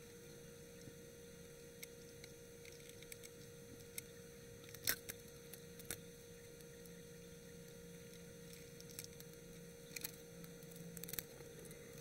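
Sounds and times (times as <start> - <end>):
steady hum: 0.0 - 12.0
small clicks and taps: 7.7 - 12.0.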